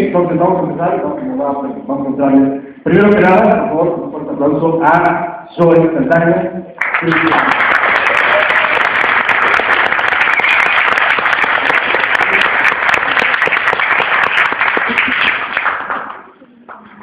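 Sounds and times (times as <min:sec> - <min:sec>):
audience applauding: 0:06.8 - 0:17.0.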